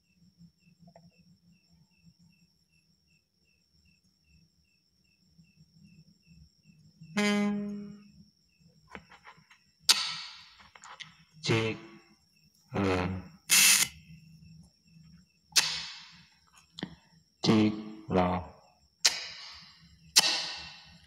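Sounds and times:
low buzzing tone: 7.1s - 8.2s.

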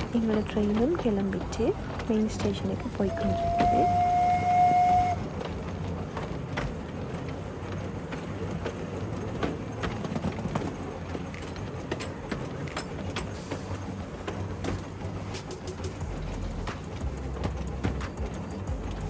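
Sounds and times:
train rumbling: 0.0s - 19.0s
wheels clicking and knocking: 0.0s - 19.0s
steam locomotive whistle: 3.0s - 5.3s.

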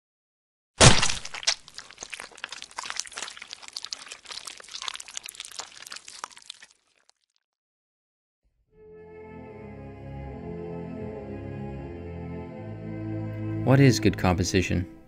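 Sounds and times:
crackling crunching clicks: 0.8s - 6.9s.

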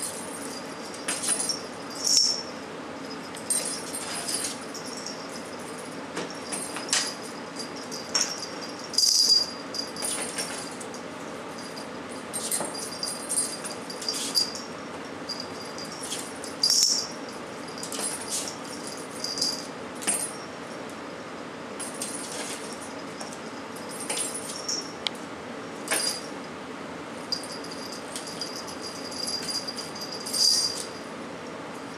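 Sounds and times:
small collar bell jingling: 0.0s - 20.8s, 21.8s - 25.0s, 25.9s - 26.4s, 27.2s - 31.1s.

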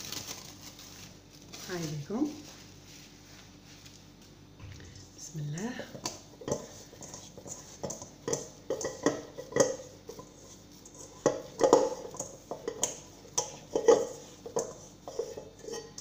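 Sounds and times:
dough thudding in a metal pot: 11.1s - 15.2s.

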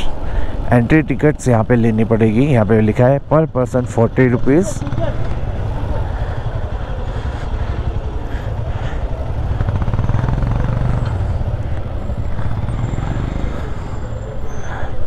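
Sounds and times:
small motorcycle engine running: 4.7s - 14.3s.

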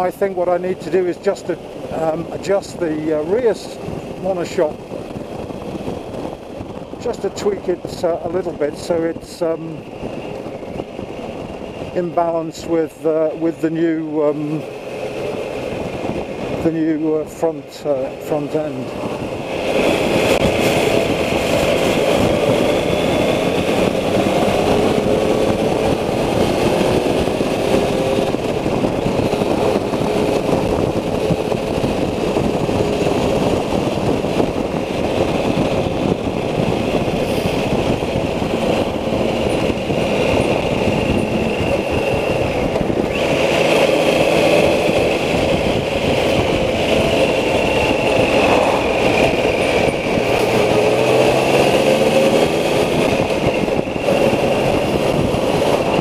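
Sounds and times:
wind noise: 0.0s - 56.0s
motorcycle engine running: 18.1s - 56.0s.

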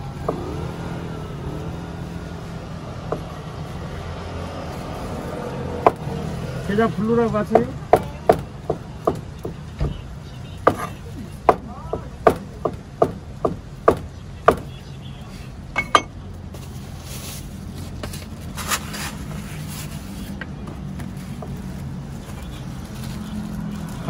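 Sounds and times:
cleaver chopping on wooden board: 5.8s - 6.1s, 10.6s - 14.7s
slices scraped into foam tray: 18.0s - 20.4s.

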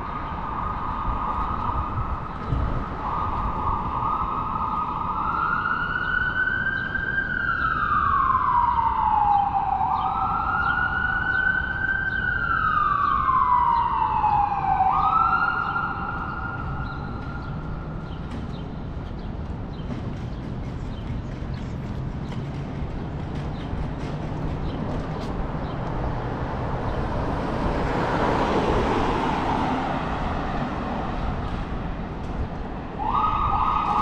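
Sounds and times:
emergency siren wailing: 0.0s - 18.1s, 26.8s - 31.9s, 32.7s - 34.0s
street traffic: 0.0s - 34.0s.

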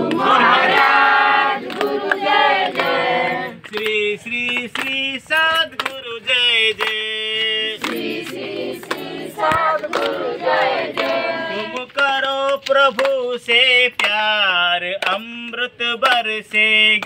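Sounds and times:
women singing devotional song: 0.0s - 14.3s
hand claps: 0.0s - 17.0s.

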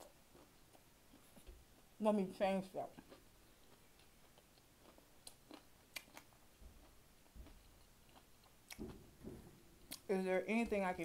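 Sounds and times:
close-up chewing with mouth clicks: 0.0s - 1.9s, 2.9s - 9.0s
soft low thuds: 8.7s - 10.9s.

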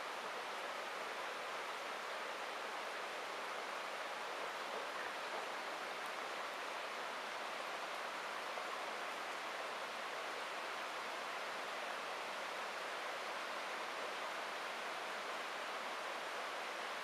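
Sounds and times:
heavy rain on asphalt: 0.0s - 17.0s.

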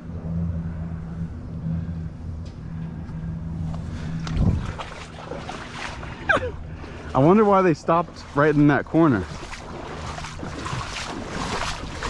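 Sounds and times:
steady low hum: 0.0s - 12.0s
wading through splashing water: 3.6s - 12.0s.

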